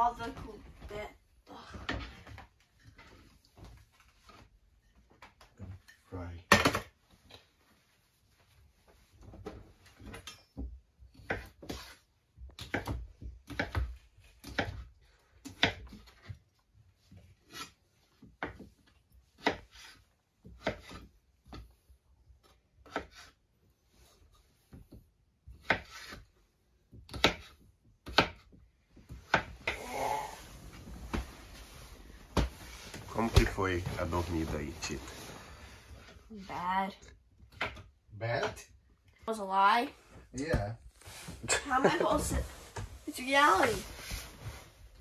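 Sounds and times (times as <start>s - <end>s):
objects knocking and tapping: 1.7s - 7.4s.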